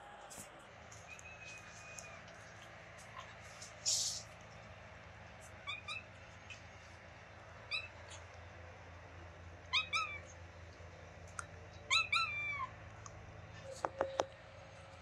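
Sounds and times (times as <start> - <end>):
kitten chirping: 5.6 - 6.1, 7.7 - 8.2, 9.7 - 10.3, 11.9 - 12.7.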